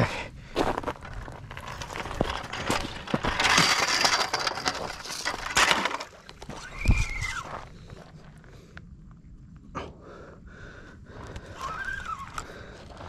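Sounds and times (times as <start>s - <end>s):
footsteps crunching on gravel: 0.5s - 6.8s
stones clinking together: 1.1s - 6.4s.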